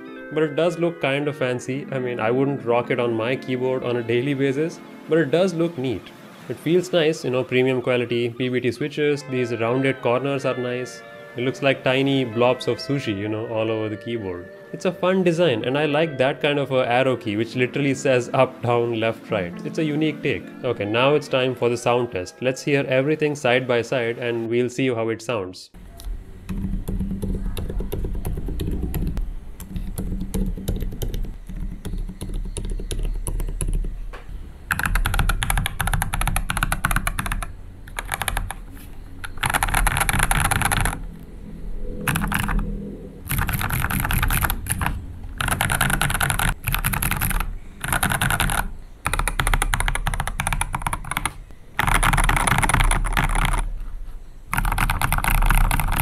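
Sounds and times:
fast typing on mechanical keyboard: 26.5s - 33.9s, 34.7s - 41.0s, 42.0s - 42.7s, 43.3s - 53.7s, 54.5s - 56.0s.

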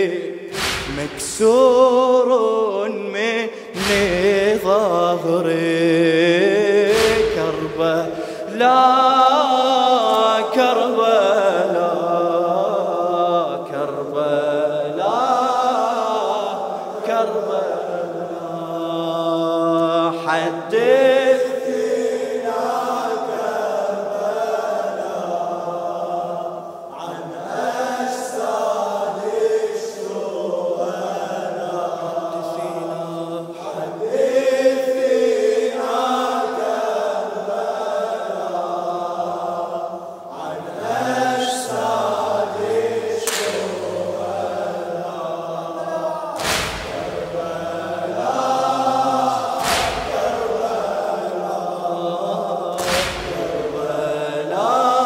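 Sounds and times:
male voices chanting: 0.0s - 55.0s
sharp noise hits: 0.5s - 1.8s, 3.7s - 4.9s, 6.9s - 8.6s, 46.4s - 50.7s, 52.8s - 53.8s.

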